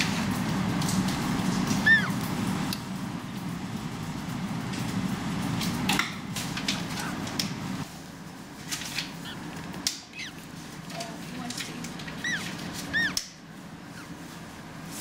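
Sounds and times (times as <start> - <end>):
steady low hum: 0.0 - 15.0
penguin chicks peeping: 9.2 - 10.5, 12.0 - 13.4.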